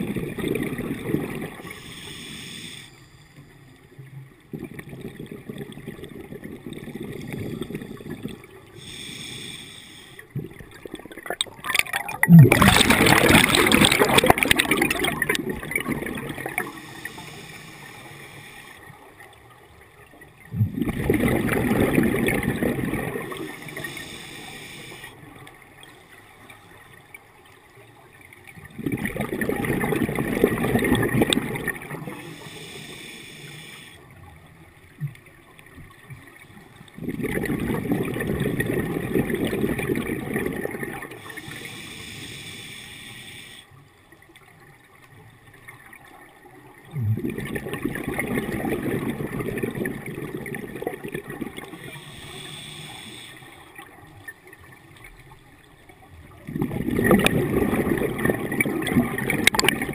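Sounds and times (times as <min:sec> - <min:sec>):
exhaled bubbles rushing: 0:00.0 - 0:01.8, 0:10.4 - 0:16.9, 0:20.5 - 0:23.9, 0:28.6 - 0:32.2, 0:36.9 - 0:41.4, 0:46.8 - 0:52.1, 0:56.3 - 0:59.9
regulator inhalation hiss: 0:01.7 - 0:03.2, 0:08.8 - 0:10.3, 0:16.7 - 0:18.8, 0:23.5 - 0:25.2, 0:32.1 - 0:34.0, 0:41.2 - 0:43.7, 0:51.8 - 0:53.7.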